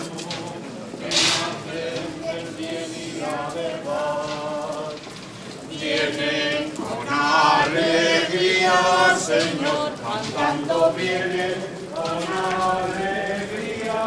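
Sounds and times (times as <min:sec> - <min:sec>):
group singing a hymn: 0:00.0 - 0:14.0.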